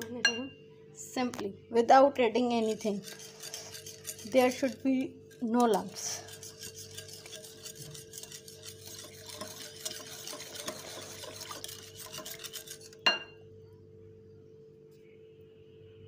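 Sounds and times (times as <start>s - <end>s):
whisk beating in a bowl: 2.4s - 13.1s.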